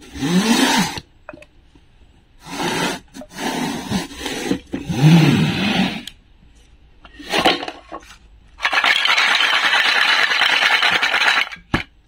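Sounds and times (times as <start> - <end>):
toy pieces rattling in basket: 8.6 - 11.6.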